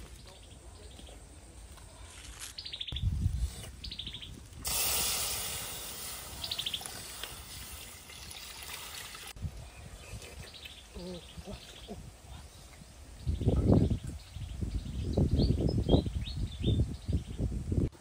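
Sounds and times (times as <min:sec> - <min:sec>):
small birds chirping: 0:00.0 - 0:04.6, 0:06.0 - 0:07.4, 0:09.5 - 0:17.5
water sizzling in hot wok: 0:04.6 - 0:09.4.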